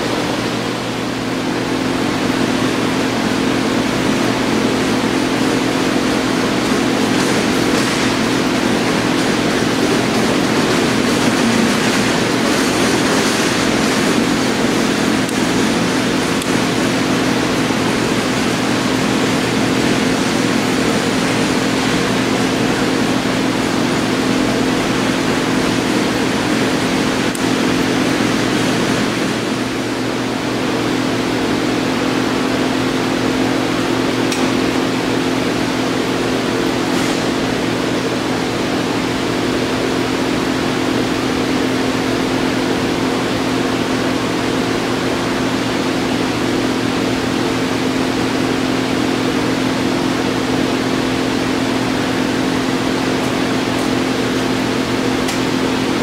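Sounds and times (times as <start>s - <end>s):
lathe motor humming: 0.0s - 31.5s.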